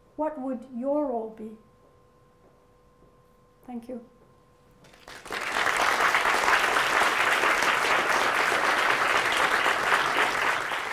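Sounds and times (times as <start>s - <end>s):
audience applauding: 4.8s - 10.9s.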